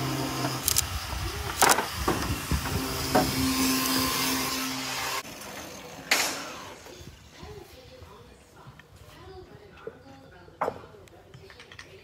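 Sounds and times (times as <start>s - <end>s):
small motor humming: 0.0s - 6.9s.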